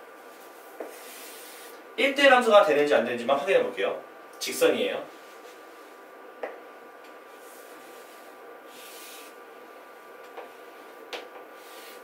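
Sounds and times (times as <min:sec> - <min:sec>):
faint room hum: 0:00.0 - 0:12.0
chalk scraping on chalkboard: 0:00.8 - 0:01.8, 0:07.4 - 0:09.4, 0:11.6 - 0:12.0.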